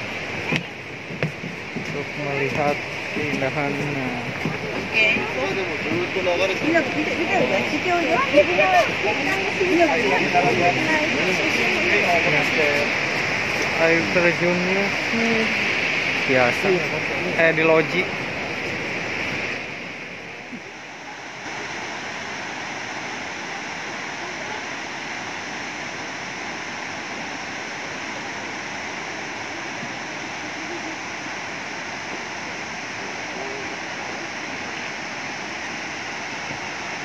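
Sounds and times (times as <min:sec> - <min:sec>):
waterfall rushing: 0:00.0 - 0:37.0.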